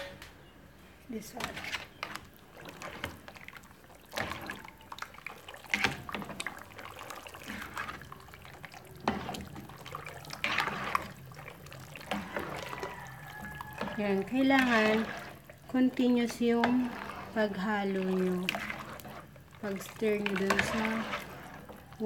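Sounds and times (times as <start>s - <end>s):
boiling water bubbling: 1.1s - 22.0s
spoon scraping metal pot: 1.2s - 3.3s, 9.0s - 22.0s.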